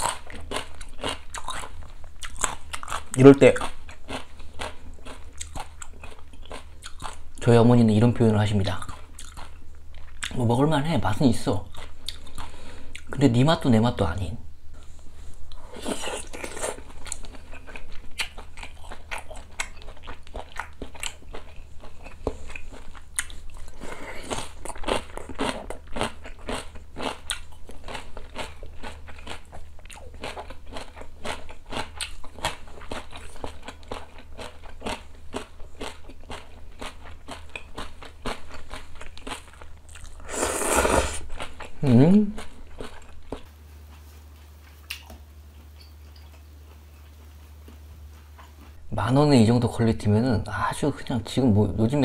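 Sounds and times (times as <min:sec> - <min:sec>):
wet chewing and lip smacks: 0:00.0 - 0:07.4, 0:08.8 - 0:10.4, 0:11.7 - 0:13.2, 0:15.5 - 0:40.2, 0:42.4 - 0:48.8
noodle slurping: 0:40.1 - 0:41.4.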